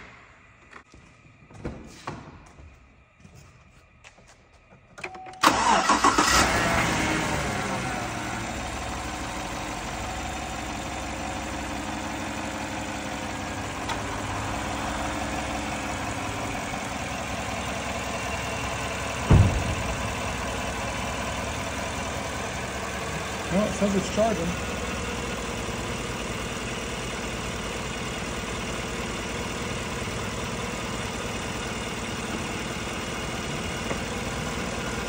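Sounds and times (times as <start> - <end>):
engine cranking and idling: 4.2 - 35.0
sharp thump: 19.2 - 20.6.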